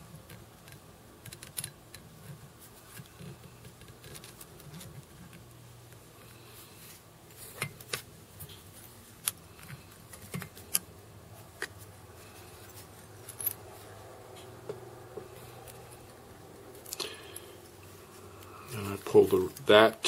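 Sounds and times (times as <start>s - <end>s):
faint low hum: 0.0s - 20.0s.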